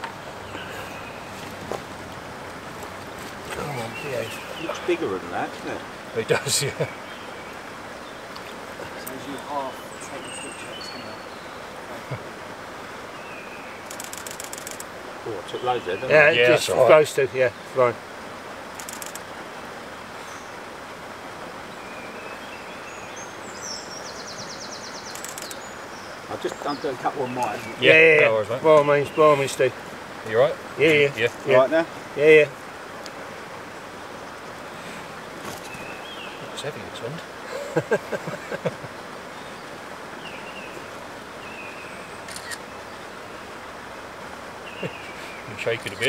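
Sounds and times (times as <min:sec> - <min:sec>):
small birds chirping: 0:00.0 - 0:46.0
steady wind: 0:00.0 - 0:46.0
camera shutter clicks: 0:25.1 - 0:25.6, 0:42.3 - 0:42.6.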